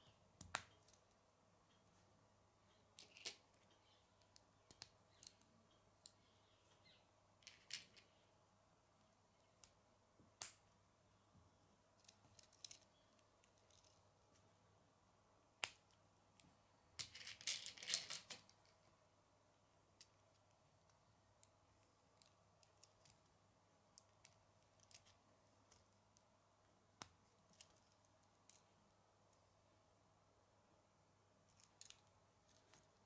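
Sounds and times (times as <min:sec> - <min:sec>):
plastic pieces clicking together: 0:17.0 - 0:18.6.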